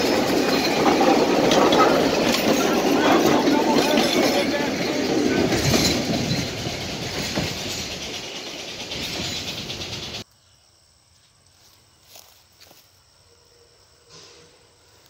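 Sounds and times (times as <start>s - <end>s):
train coaches rolling on rails: 0.0s - 10.2s.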